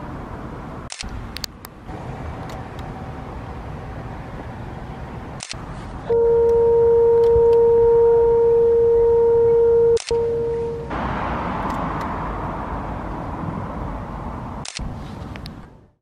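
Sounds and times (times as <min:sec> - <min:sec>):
outdoor background noise: 0:00.0 - 0:16.0
low steady horn blast: 0:06.0 - 0:11.1.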